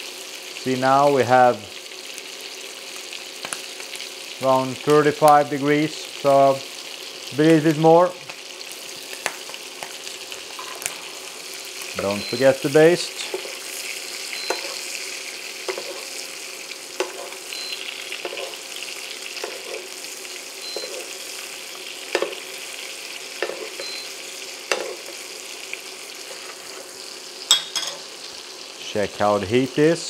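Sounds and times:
meat sizzling in butter: 0.0 - 30.0
spoon clinking against pan: 14.4 - 14.8, 15.7 - 16.0, 27.5 - 28.0.

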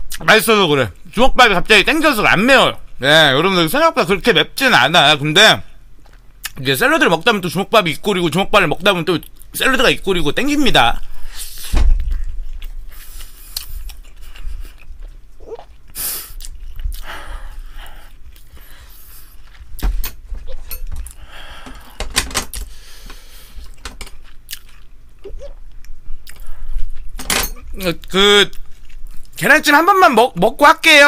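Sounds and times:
person chewing food: 6.0 - 6.6, 11.0 - 29.4.

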